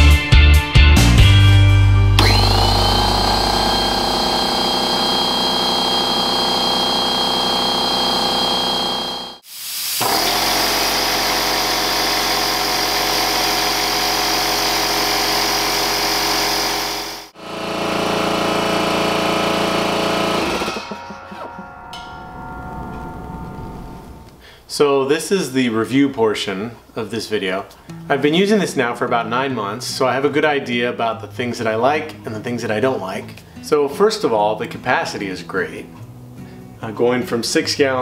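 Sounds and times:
faint high whine: 0:02.2 - 0:09.4
pancake compressor hissing: 0:02.2 - 0:16.0
air compressor running: 0:02.2 - 0:21.2.

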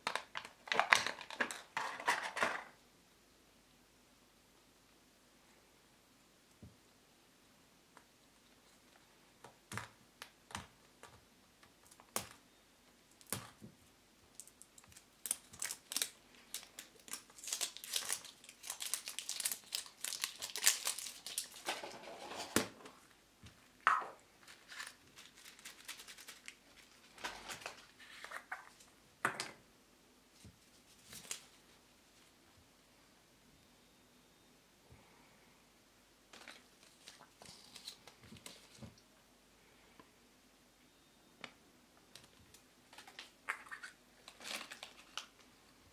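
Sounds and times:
plastic packaging crinkling: 0:00.0 - 0:02.6, 0:14.3 - 0:22.2, 0:24.4 - 0:28.8, 0:36.4 - 0:38.8, 0:42.2 - 0:45.5
paper rustling: 0:24.4 - 0:28.9.

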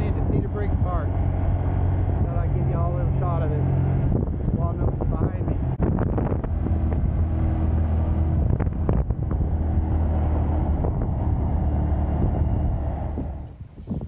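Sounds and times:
motorcycle engine running: 0:00.0 - 0:09.9
road noise: 0:00.0 - 0:14.0
wind rushing: 0:00.0 - 0:14.0.

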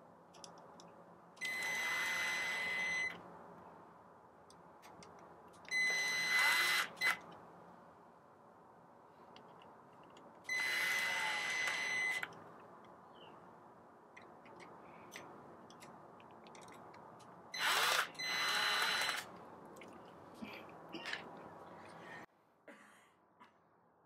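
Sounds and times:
faint small clicks: 0:00.3 - 0:00.9
electric screwdriver whining: 0:01.4 - 0:03.1, 0:05.7 - 0:07.2, 0:10.5 - 0:12.2, 0:17.6 - 0:19.3.

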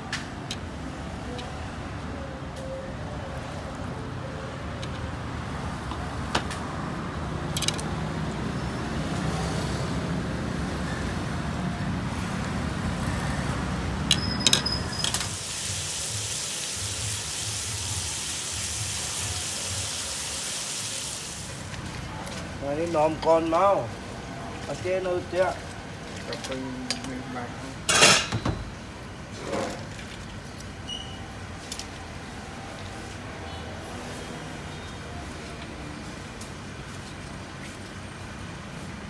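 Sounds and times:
street traffic rumbling: 0:00.0 - 0:39.0
meat sizzling on a grill pan: 0:15.3 - 0:21.7.

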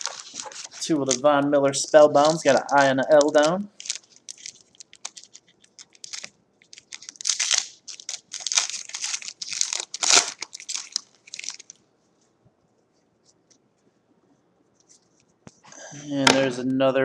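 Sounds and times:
plastic wrapper crinkling and tearing: 0:00.0 - 0:11.8.

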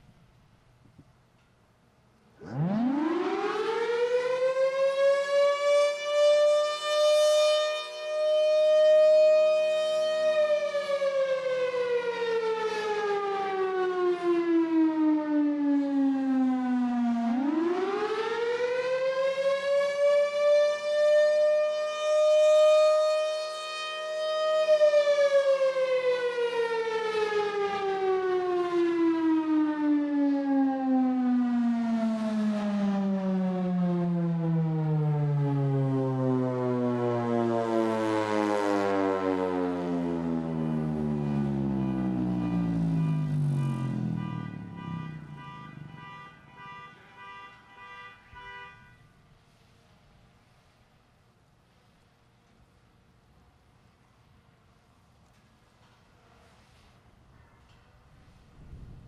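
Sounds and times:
air raid siren wailing: 0:02.4 - 0:49.1.

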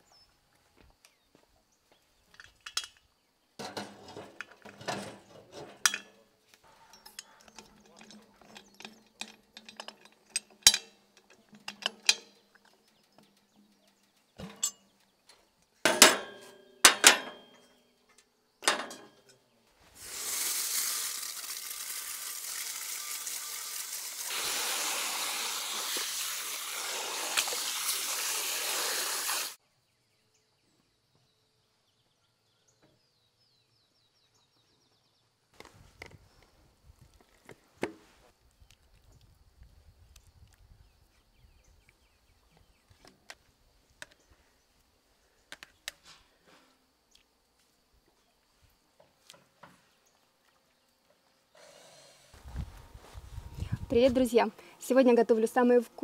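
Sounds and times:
metal lid clanking: 0:03.6 - 0:06.2, 0:06.9 - 0:12.5, 0:14.4 - 0:14.9, 0:15.9 - 0:17.7, 0:18.6 - 0:19.4
water running from hose: 0:19.9 - 0:29.6.

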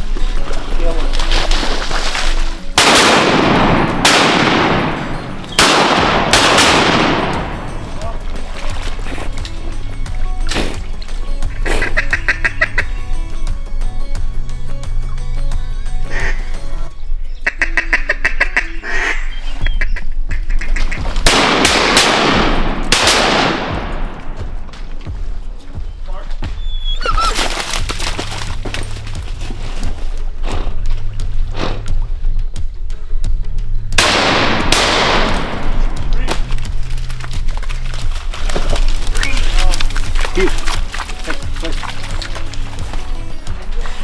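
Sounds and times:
shotgun blasts with echo: 0:02.8 - 0:08.0, 0:21.2 - 0:24.7, 0:34.0 - 0:36.6
duck quacking: 0:11.5 - 0:12.9, 0:16.1 - 0:16.6, 0:17.4 - 0:21.2.

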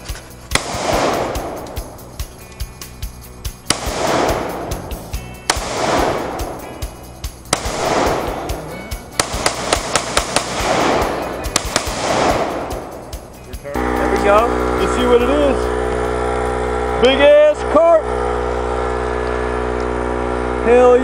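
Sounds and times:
rifle shots: 0:00.0 - 0:02.3, 0:03.6 - 0:13.4.

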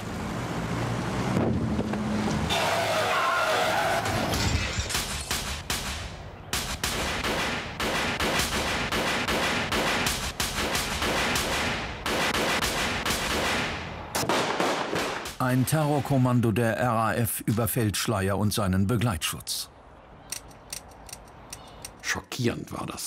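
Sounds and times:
automatic rifle fire: 0:06.6 - 0:15.3.

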